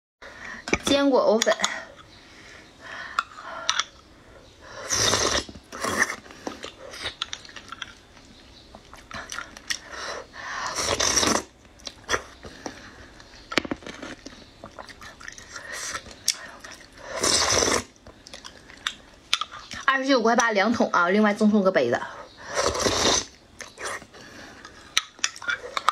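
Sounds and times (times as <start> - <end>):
loud slurps: 4.8 - 6.2, 10.6 - 11.5, 17.1 - 17.9, 22.5 - 24.0
chewing: 5.4 - 9.9, 10.9 - 19.8, 22.6 - 25.9.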